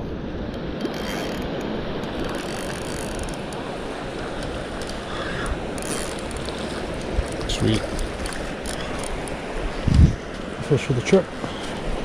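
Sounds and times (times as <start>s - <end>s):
fishing reel ratcheting: 2.3s - 3.4s, 5.8s - 6.6s.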